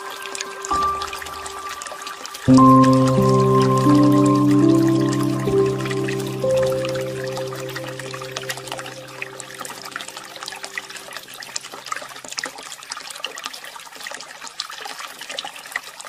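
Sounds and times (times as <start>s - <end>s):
background music tones: 0.0s - 11.3s
water trickling: 0.0s - 16.0s.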